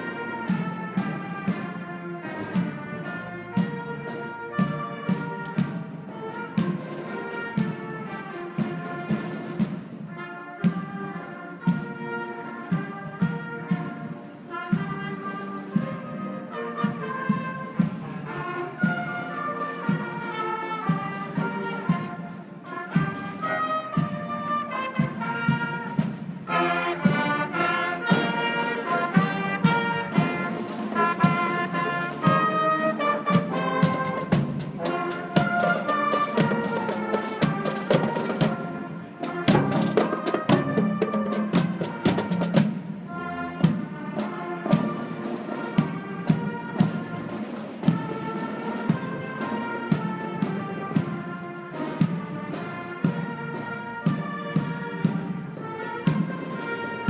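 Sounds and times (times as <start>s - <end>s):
brass and flutes playing tune: 0.0s - 57.0s
snare and tenor drums: 0.0s - 57.0s.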